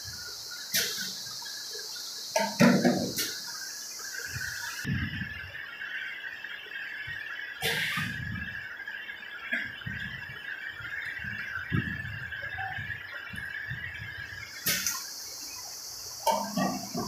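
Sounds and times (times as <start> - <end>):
machine high whine: 0.0 - 17.0
water splashing into tank: 14.6 - 15.1, 16.2 - 17.0.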